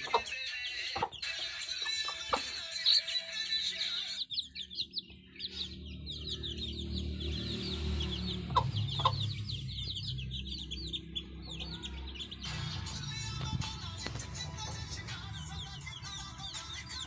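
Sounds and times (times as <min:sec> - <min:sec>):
hen clucking: 0:00.0 - 0:04.3, 0:08.5 - 0:09.4
chicks peeping: 0:00.0 - 0:17.0.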